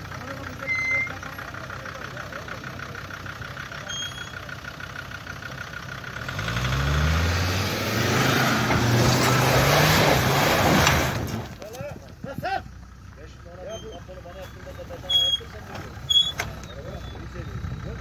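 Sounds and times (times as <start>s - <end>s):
truck engine revving: 0.0s - 18.0s
tyres churning through mud: 5.4s - 12.3s.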